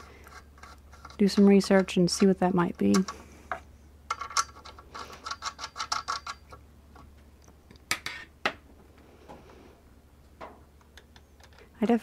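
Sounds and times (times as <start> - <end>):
light clicks and scrapes: 0.0 - 6.1.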